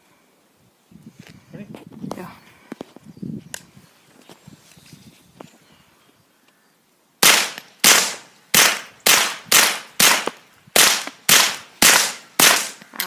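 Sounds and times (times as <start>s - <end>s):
rifle shots with echo: 7.2s - 12.8s.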